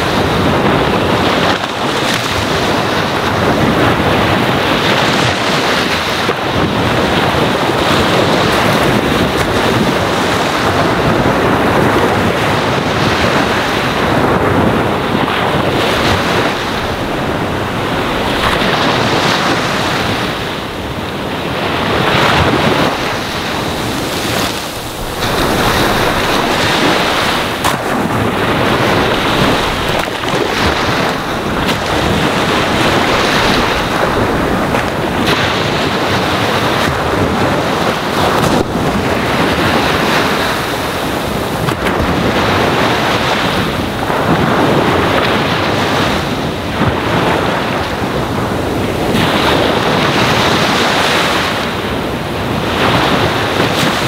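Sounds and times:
ocean waves washing onto shore: 0:00.0 - 0:54.0.

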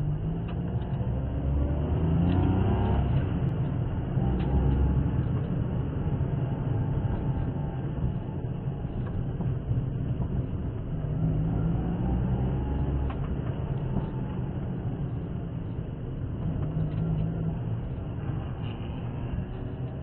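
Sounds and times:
car engine rumble: 0:00.0 - 0:20.0
road noise: 0:00.0 - 0:20.0.

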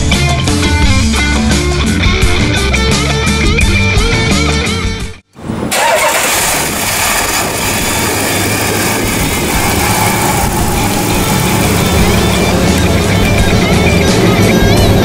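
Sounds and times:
car engine idling: 0:05.7 - 0:15.0.

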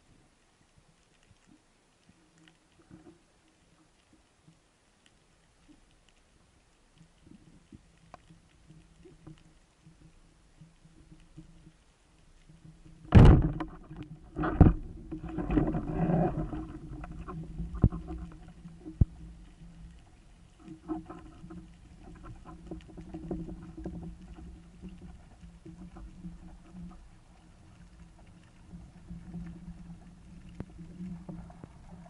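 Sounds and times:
loud sharp crack underwater: 0:13.0 - 0:19.2.

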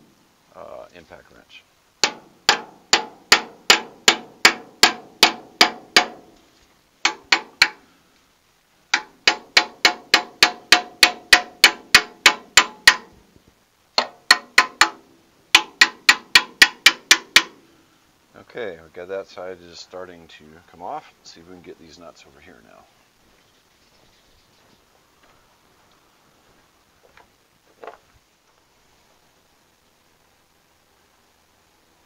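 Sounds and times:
hammer striking steel: 0:02.0 - 0:06.2, 0:07.0 - 0:07.8, 0:09.0 - 0:13.1, 0:15.6 - 0:17.6.

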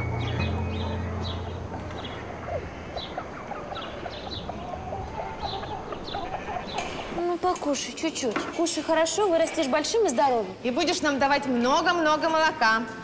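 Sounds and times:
small birds chirping: 0:00.0 - 0:07.2
hens clucking: 0:00.4 - 0:07.2.

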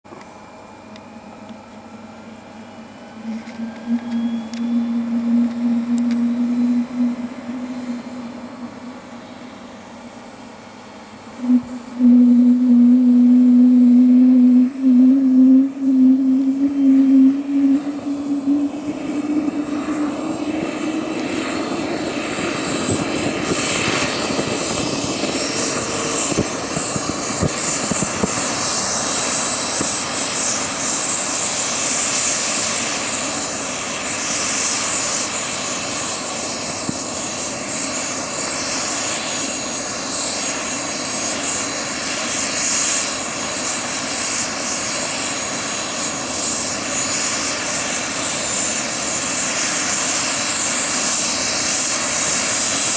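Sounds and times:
model helicopter rotor whine: 0:00.1 - 0:52.9.

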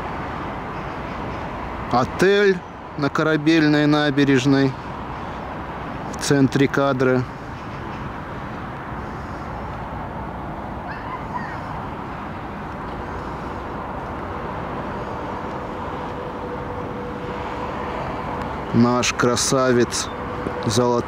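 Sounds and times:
distant city traffic hum: 0:00.0 - 0:21.0.

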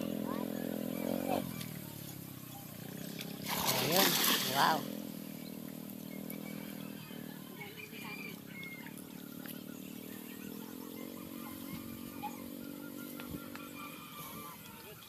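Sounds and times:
steady low motor hum: 0:00.0 - 0:15.0
bird chirps: 0:05.2 - 0:15.0.

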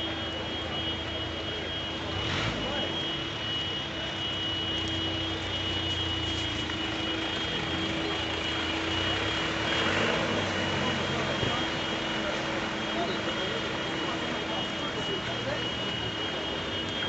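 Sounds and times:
vehicle engines in floodwater: 0:00.0 - 0:17.0
truck pushing through water: 0:06.9 - 0:14.8.

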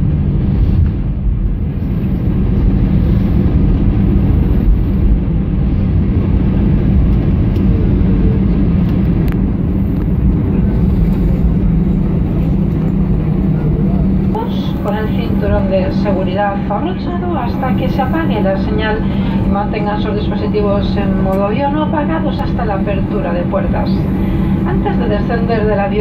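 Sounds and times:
airplane cabin engine rumble: 0:00.0 - 0:26.0.

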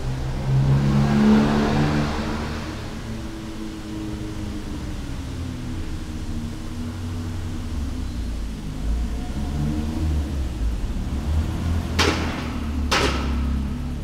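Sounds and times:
car engine rumbling: 0:00.0 - 0:14.0.

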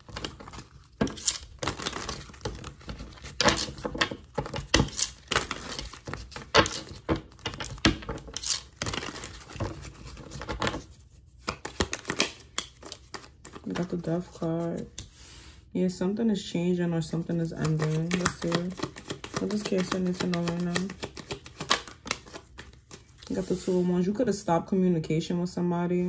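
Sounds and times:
cards being shuffled: 0:00.0 - 0:15.2, 0:17.1 - 0:23.8.

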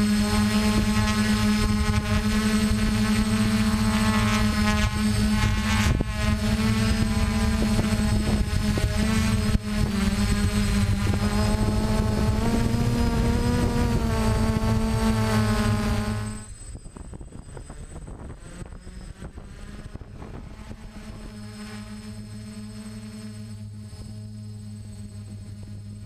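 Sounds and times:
quadcopter propellers buzzing: 0:00.0 - 0:26.0
quiet motor hum: 0:00.0 - 0:26.0.

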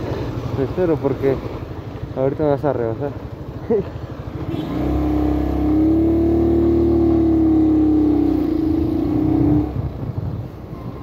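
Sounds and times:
motorcycle engine accelerating: 0:04.4 - 0:10.2.

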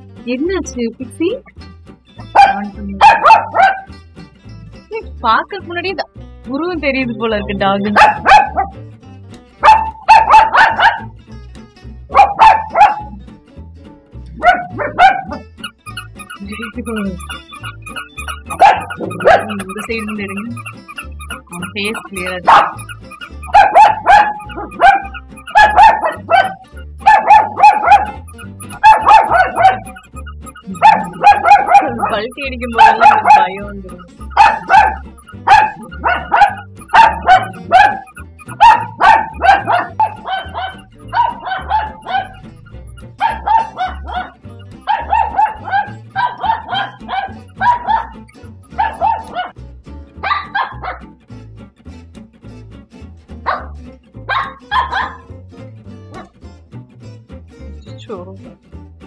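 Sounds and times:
toy dog electronic barking: 0:02.3 - 0:03.9, 0:07.8 - 0:08.7, 0:09.6 - 0:11.1, 0:12.1 - 0:13.2, 0:14.4 - 0:49.6, 0:50.3 - 0:51.0, 0:54.3 - 0:55.3
music with low beat: 0:14.3 - 0:50.8.

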